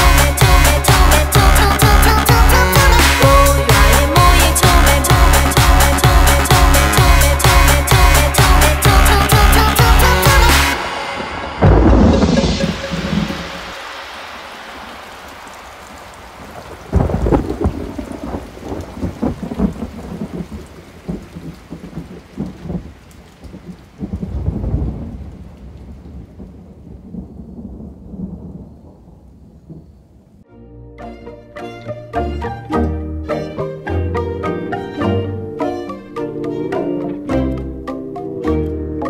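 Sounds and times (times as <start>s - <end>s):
heavy rain: 0.0s - 30.4s
thunder rumbling: 8.8s - 30.4s.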